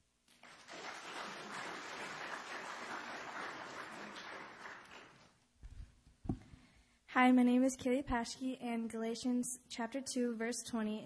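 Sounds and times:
audience applauding: 0:00.3 - 0:05.4.

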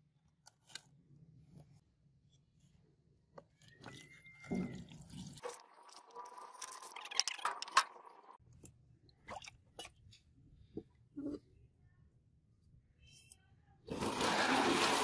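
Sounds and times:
acid crackling and fizzing: 0:13.9 - 0:15.0.

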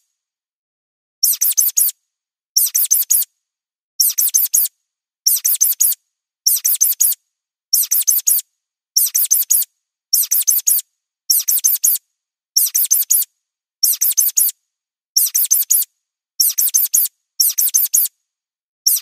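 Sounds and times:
high mouse squeaks: 0:01.3 - 0:01.9, 0:02.7 - 0:03.3, 0:10.2 - 0:12.0, 0:13.9 - 0:14.5, 0:15.3 - 0:18.1.

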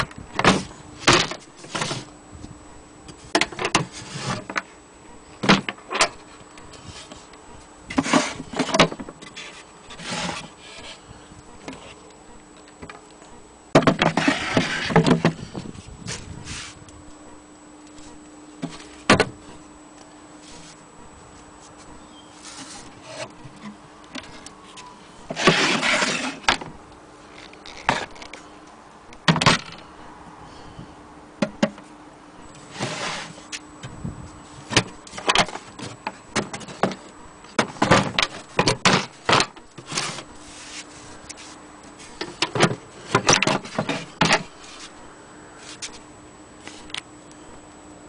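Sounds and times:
knocks and scrapes of wood: 0:00.0 - 0:02.1, 0:03.3 - 0:04.6, 0:07.9 - 0:11.0, 0:13.8 - 0:16.8, 0:18.0 - 0:19.4, 0:22.4 - 0:26.7, 0:27.4 - 0:28.4, 0:32.6 - 0:33.6, 0:34.6 - 0:45.0.

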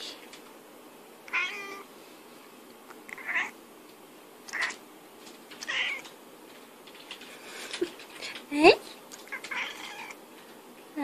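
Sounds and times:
cat meowing: 0:01.3 - 0:01.9, 0:03.1 - 0:03.6, 0:05.6 - 0:06.1, 0:09.3 - 0:10.2.

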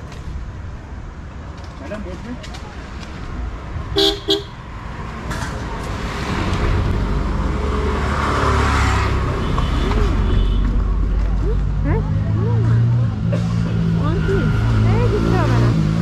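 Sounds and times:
vehicle passing close by: 0:03.4 - 0:16.0
vehicle horn toots: 0:04.0 - 0:04.6, 0:09.4 - 0:10.8.

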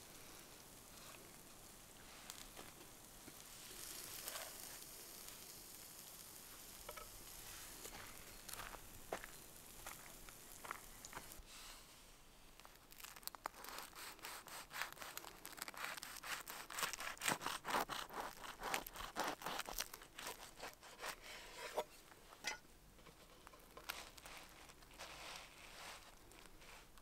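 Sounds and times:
knife sawing through crusty bread: 0:13.6 - 0:21.7.

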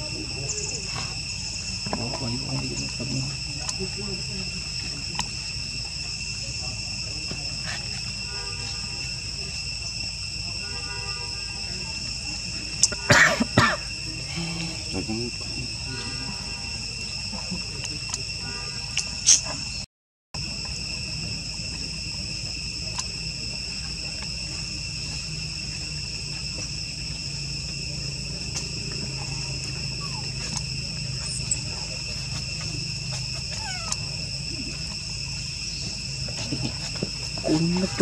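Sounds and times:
insect chorus: 0:00.0 - 0:38.0
baby monkey squeaks: 0:33.6 - 0:34.0.

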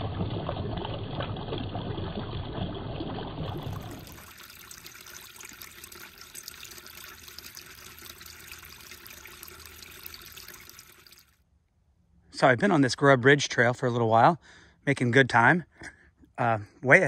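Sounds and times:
water trickling and dripping: 0:00.0 - 0:11.4.

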